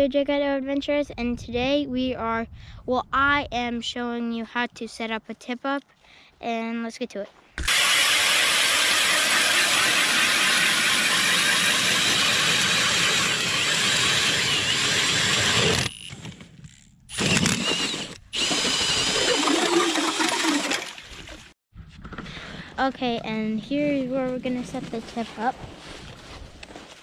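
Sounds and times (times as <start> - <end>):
ice auger grinding through ice: 7.6 - 16.2, 17.1 - 21.0.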